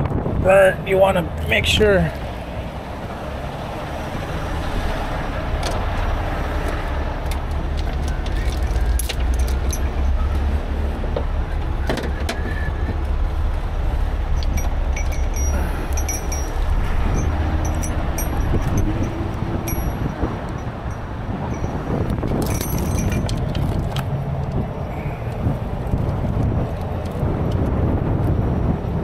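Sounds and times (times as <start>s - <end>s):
low engine rumble: 0.0s - 29.0s
steel chains clinking and rattling: 7.7s - 10.3s, 14.3s - 24.1s.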